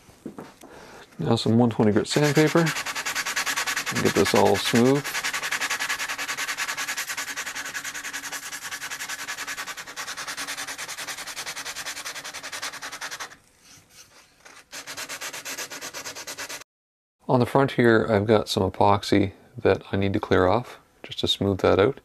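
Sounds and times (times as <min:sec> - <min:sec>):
sandpaper rubbing on wood: 0:02.0 - 0:16.6.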